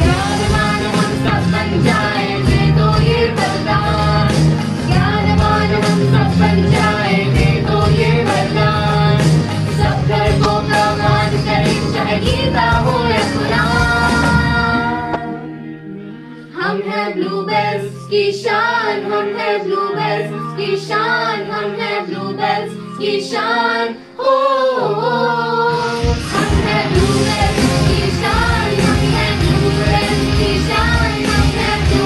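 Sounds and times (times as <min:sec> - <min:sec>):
group of voices singing: 0:00.0 - 0:15.7, 0:16.3 - 0:32.0
acoustic guitar: 0:00.0 - 0:16.6
keyboard: 0:00.0 - 0:32.0.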